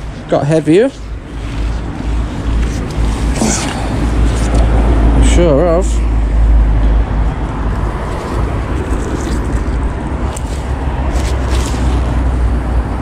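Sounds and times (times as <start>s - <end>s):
wet waterweed rustling: 7.9s - 12.6s.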